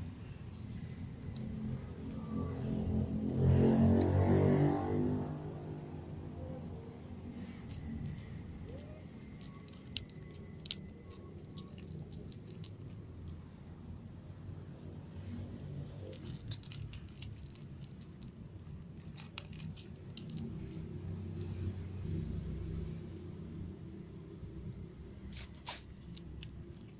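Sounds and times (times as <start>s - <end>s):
cat crunching dry kibble: 0.2s - 4.2s, 6.9s - 13.4s, 15.8s - 21.9s, 25.2s - 26.9s.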